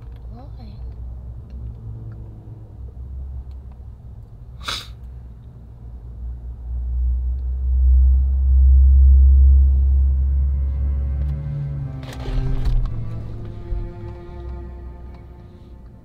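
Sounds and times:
low rumble inside car: 0.0 - 16.0
deep bass swell: 1.0 - 4.2, 5.7 - 16.0
brief hissing rustle: 4.6 - 5.0.

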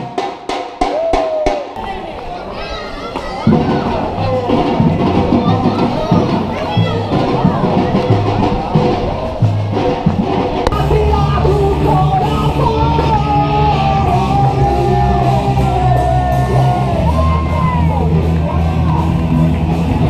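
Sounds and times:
steady bass line: 3.5 - 20.0
person singing: 10.7 - 17.6.

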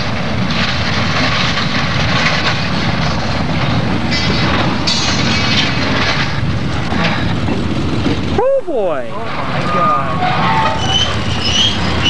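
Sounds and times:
freight train cars grinding on track: 0.0 - 12.0
high metallic screech: 9.2 - 12.0.

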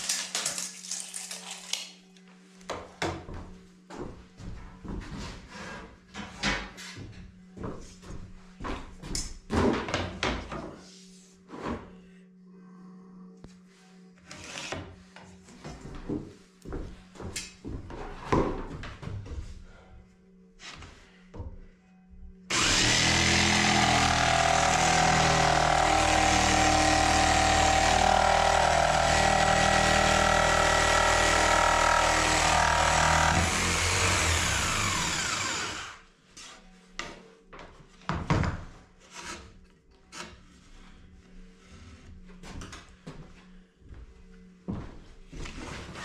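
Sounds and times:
jigsaw cutting board: 22.5 - 36.0.

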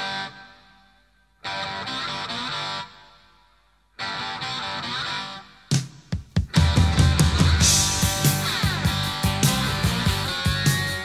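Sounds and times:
rock band playing: 5.7 - 11.0.

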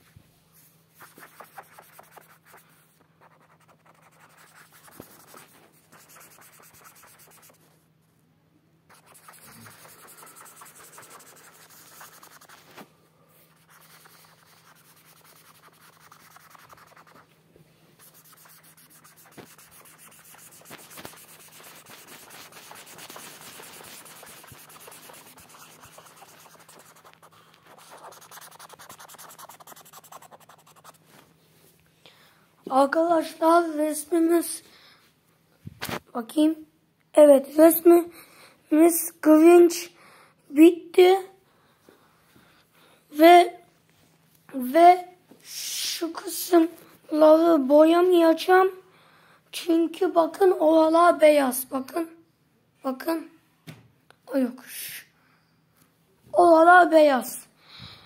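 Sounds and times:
faint steady hum: 0.0 - 58.0
marker scribbling on paper: 1.0 - 2.6, 3.2 - 7.7, 8.9 - 12.9, 13.5 - 17.3, 18.0 - 31.0.

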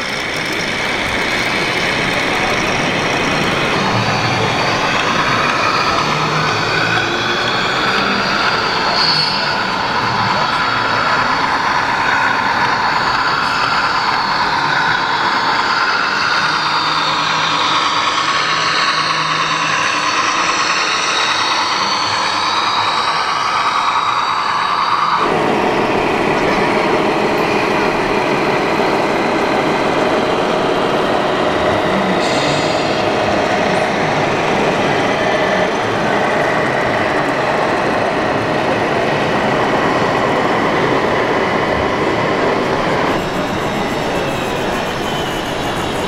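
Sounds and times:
busy exhibition hall noise: 0.0 - 46.0.

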